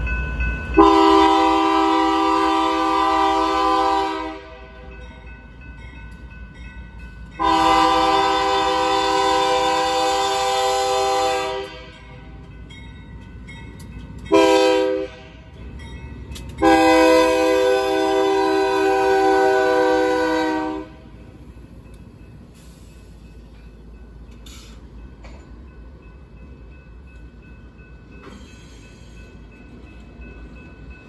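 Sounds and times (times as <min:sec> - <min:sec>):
diesel locomotive rumbling: 0:00.0 - 0:31.0
locomotive air horn blasts: 0:00.8 - 0:04.9, 0:07.4 - 0:12.0, 0:14.3 - 0:15.5, 0:16.6 - 0:21.1.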